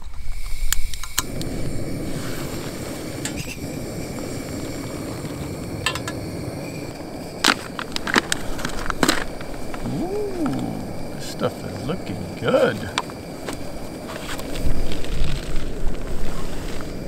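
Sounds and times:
gas stove hissing: 0.0s - 17.0s.

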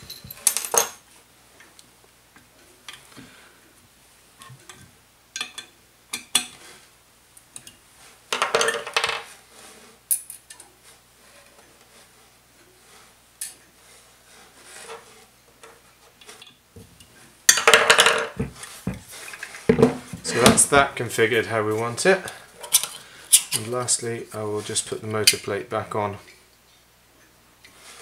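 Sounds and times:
metal tools clinking and scraping: 0.0s - 1.0s, 8.4s - 9.3s, 22.2s - 24.0s.

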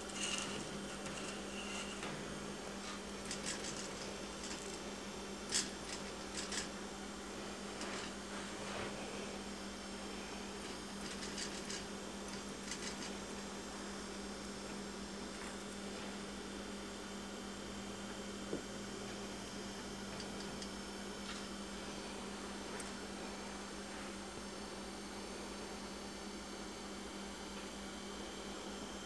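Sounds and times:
electrical mains hum: 0.0s - 29.0s.

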